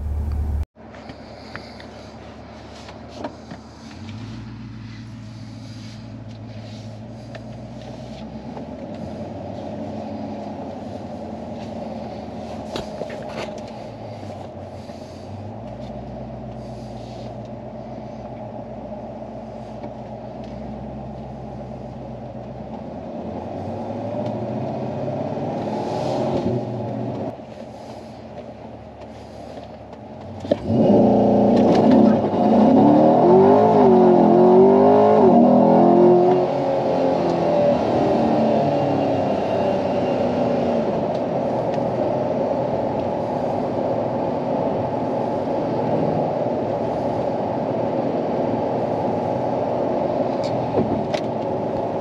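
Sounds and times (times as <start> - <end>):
car engine revving: 0.0 - 0.7, 30.4 - 43.6.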